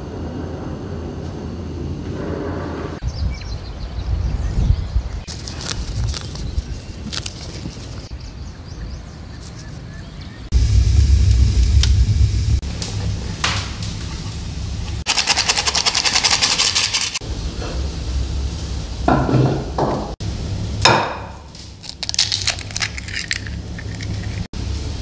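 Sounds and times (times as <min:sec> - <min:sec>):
egg cracking: 0:05.3 - 0:08.1, 0:15.0 - 0:17.2, 0:21.6 - 0:24.5
low hum: 0:10.4 - 0:19.1, 0:20.2 - 0:25.0
sieve rattling: 0:15.0 - 0:17.2, 0:22.0 - 0:24.5.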